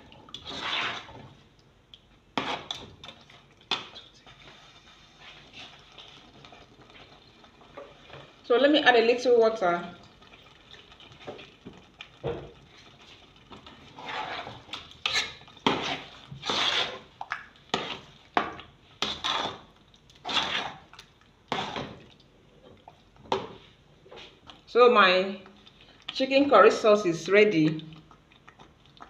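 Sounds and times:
spoon scraping a pot: 0:00.4 - 0:01.2, 0:02.4 - 0:02.8, 0:13.8 - 0:17.1, 0:17.7 - 0:19.6, 0:20.2 - 0:20.9, 0:21.5 - 0:22.0.

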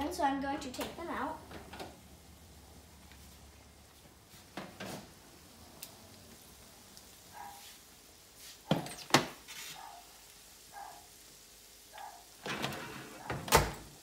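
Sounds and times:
baking sheet scraping: 0:08.4 - 0:09.8, 0:12.4 - 0:13.4.

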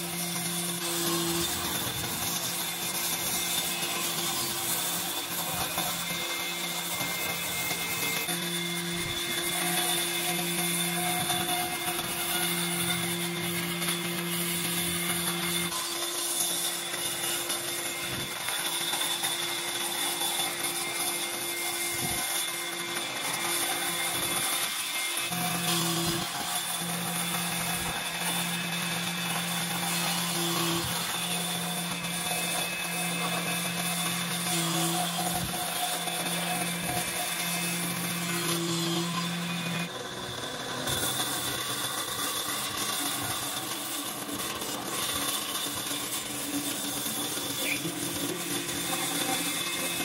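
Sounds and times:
bandsaw running: 0:00.0 - 0:50.0.

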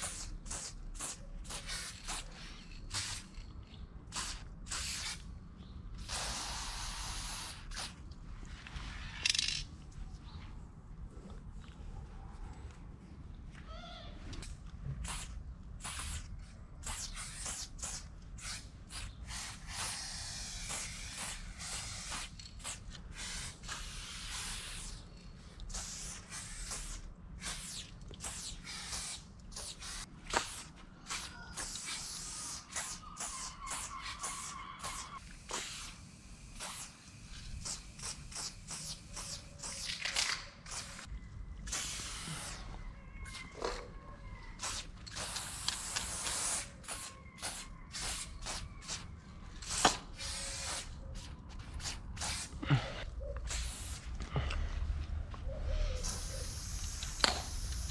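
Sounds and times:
spray paint can hissing: 0:00.0 - 0:03.4, 0:04.0 - 0:05.3, 0:06.0 - 0:08.0, 0:15.0 - 0:43.4, 0:44.6 - 0:52.6, 0:53.4 - 0:54.2, 0:55.8 - 0:57.9.

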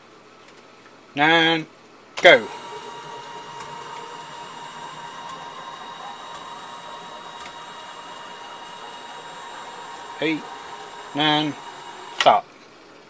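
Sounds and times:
stepper motors whining: 0:02.2 - 0:12.4.

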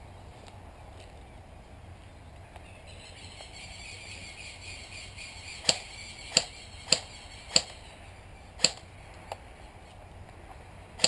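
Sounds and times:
airsoft rifle shots: 0:05.6 - 0:07.8, 0:08.6 - 0:08.9.

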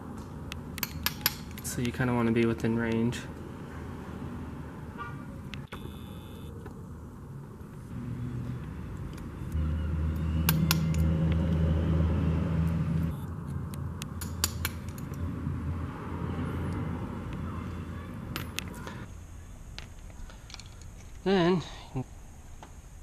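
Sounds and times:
vehicle engine humming: 0:00.0 - 0:21.2.

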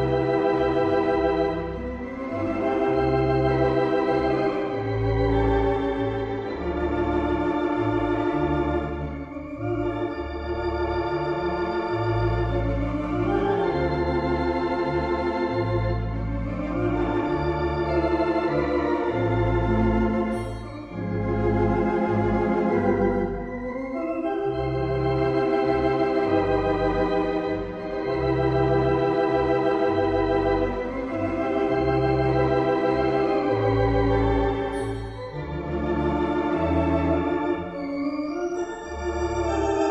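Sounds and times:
organ music: 0:00.0 - 0:39.9.

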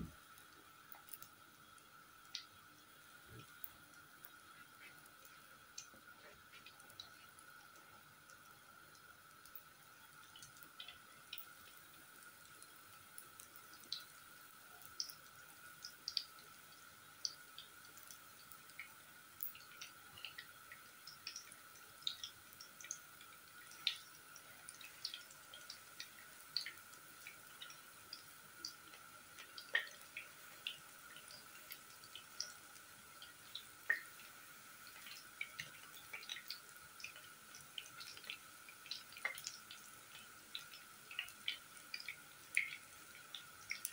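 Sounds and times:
faint steady hum: 0:00.0 - 0:43.9
food frying in hot oil: 0:00.0 - 0:43.9.

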